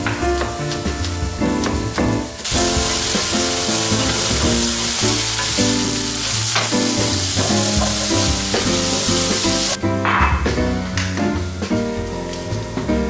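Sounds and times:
background music: 0.0s - 13.0s
wooden spatula stirring: 1.8s - 9.7s
food sizzling in skillet: 2.4s - 9.8s.

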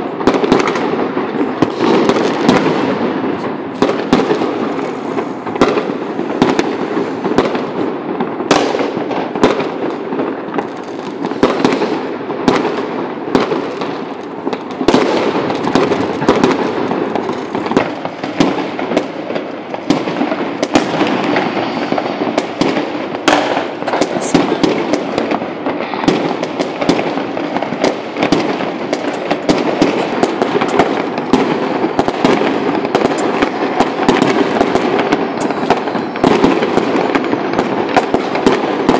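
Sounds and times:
distant firework bangs: 0.0s - 38.9s
sharp firecracker pops: 0.0s - 38.9s.

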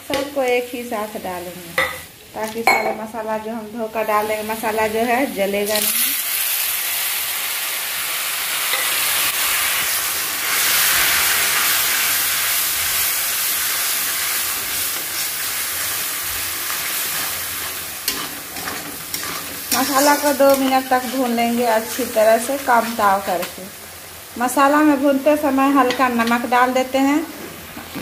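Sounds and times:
spices sizzling in hot oil: 0.0s - 28.0s
metal spatula scraping pan: 17.1s - 21.3s.

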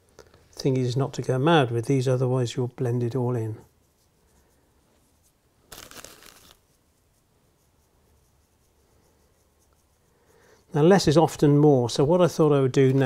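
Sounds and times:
plastic bag crinkling: 5.7s - 6.6s.

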